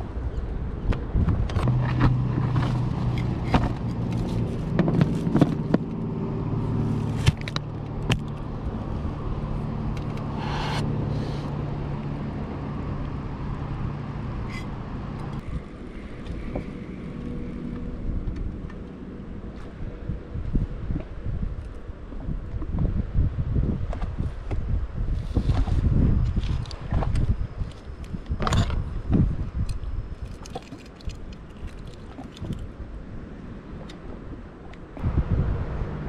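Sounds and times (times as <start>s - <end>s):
engine humming: 0.0s - 22.4s.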